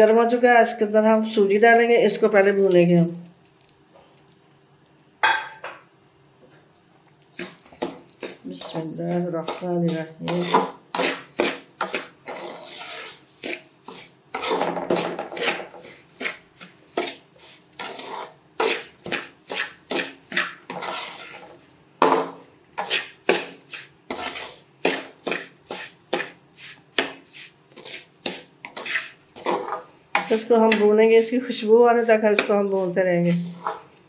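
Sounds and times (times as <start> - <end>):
metal spoon scraping metal pot: 7.4 - 33.9.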